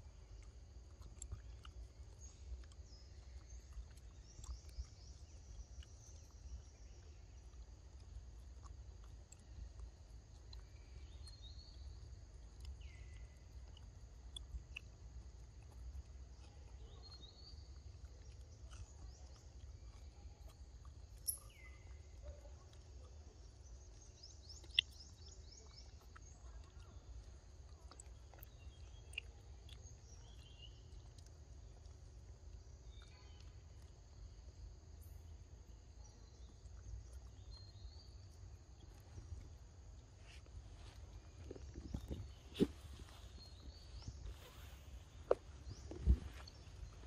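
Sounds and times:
bird chirps: 15.8s - 22.7s, 23.6s - 31.3s
bird trill: 21.2s - 21.9s.

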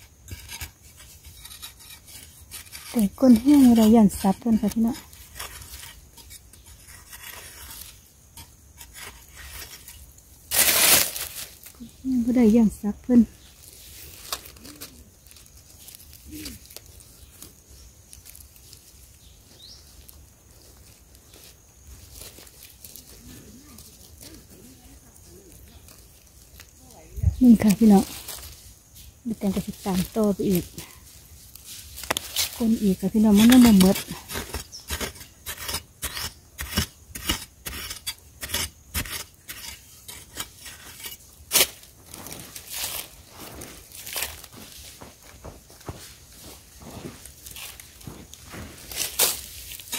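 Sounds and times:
metal blade crunching into soil: 0.0s - 11.8s, 31.9s - 43.2s, 48.8s - 49.9s
earth scraping: 0.0s - 49.9s
hands rummaging through dry soil: 8.8s - 36.3s, 39.3s - 49.9s.

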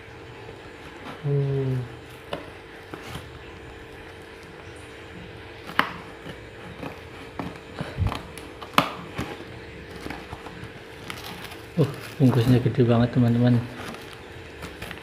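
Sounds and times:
faint steady hum: 0.0s - 15.0s
scissors cutting cardboard: 5.6s - 12.6s.

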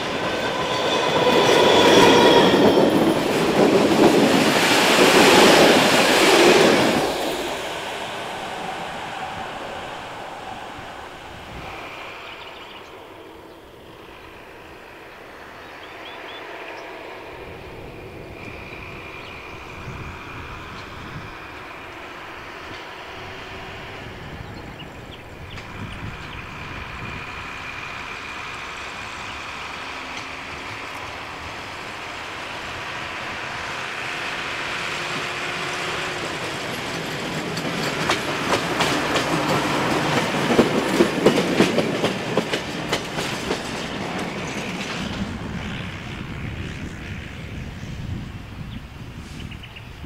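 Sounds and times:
motor rail trolley running: 0.0s - 50.0s
wheels clicking over rail joints: 36.2s - 45.6s.

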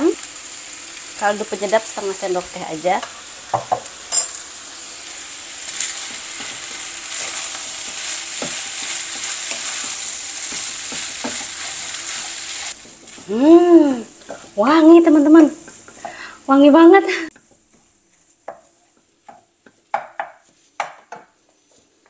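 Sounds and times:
rice sizzling in a wok: 0.0s - 21.0s
spatula scraping and tapping pan: 5.8s - 13.3s, 17.3s - 21.8s.

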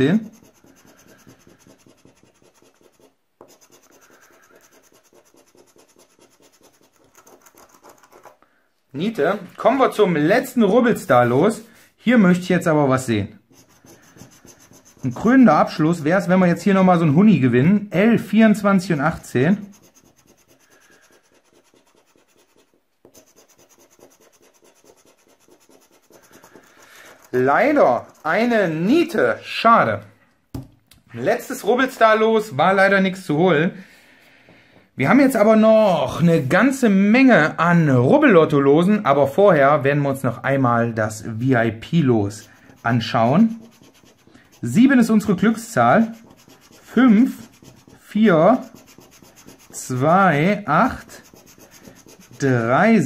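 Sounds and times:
scraping scratch card: 0.0s - 8.4s, 13.5s - 16.2s, 19.1s - 29.2s, 42.2s - 53.0s.

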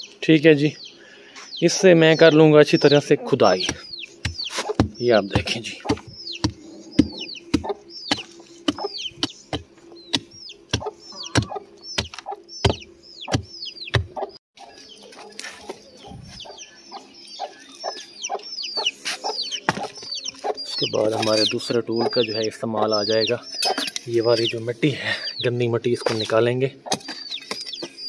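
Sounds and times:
chicks peeping: 0.0s - 28.0s
hand hoe chopping soil and rubble: 3.6s - 14.1s, 26.9s - 27.9s.

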